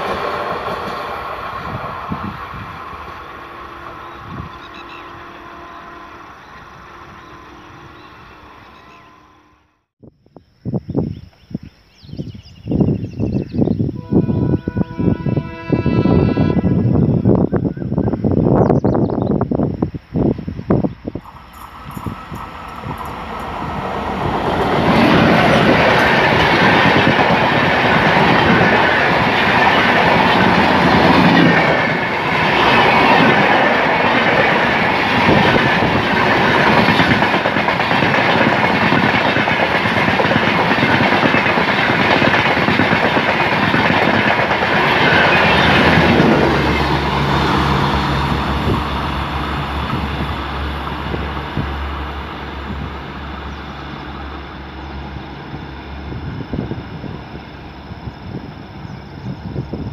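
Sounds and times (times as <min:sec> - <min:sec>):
train wheels clickety-clack: 0:00.0 - 0:02.3, 0:21.2 - 0:46.9
diesel locomotive passing: 0:00.0 - 0:09.9, 0:13.9 - 0:18.5, 0:20.6 - 0:59.9.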